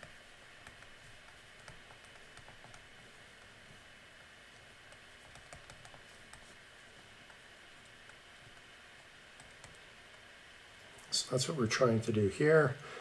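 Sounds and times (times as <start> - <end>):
stylus tapping on tablet: 0.0 - 3.5, 4.9 - 6.5
low steady hiss: 0.0 - 13.0.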